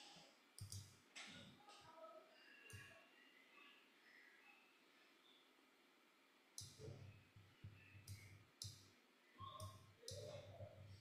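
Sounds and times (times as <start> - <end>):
computer mouse clicks: 0.6 - 1.4, 6.6 - 7.1, 8.0 - 11.0.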